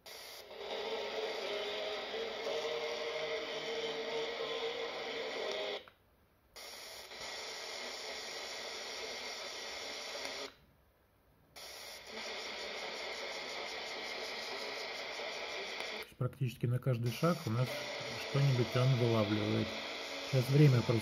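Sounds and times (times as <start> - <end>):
radio hiss and static: 0.0 - 5.9, 6.6 - 10.6, 11.6 - 21.0
weak radio station signals: 12.0 - 21.0.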